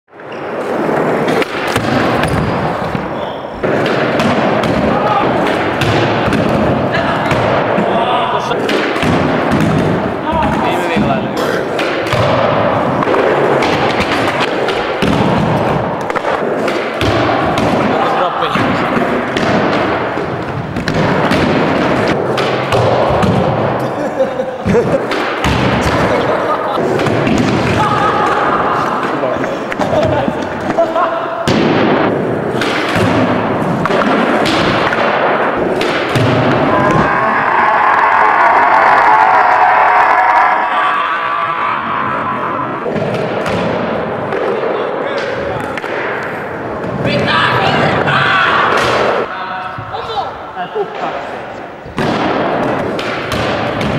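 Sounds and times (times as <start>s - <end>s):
skateboard rolling on smooth floor: 0.1s - 3.8s.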